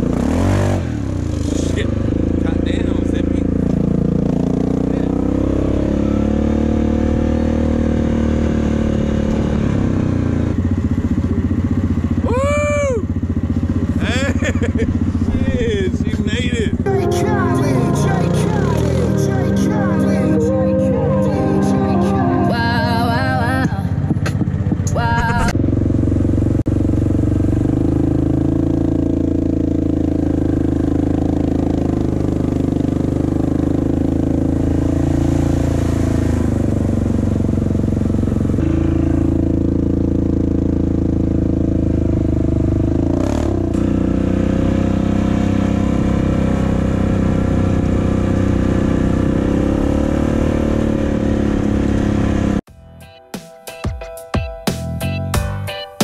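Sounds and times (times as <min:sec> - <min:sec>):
atv engine running: 0:00.0 - 0:52.6
background music with singing: 0:16.9 - 0:24.0.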